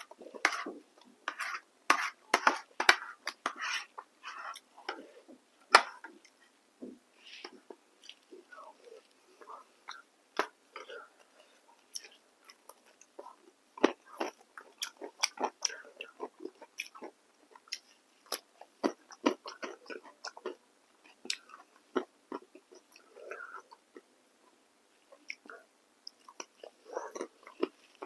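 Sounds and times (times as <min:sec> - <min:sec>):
person chewing cucumber: 0:11.8 - 0:24.1, 0:25.1 - 0:28.0.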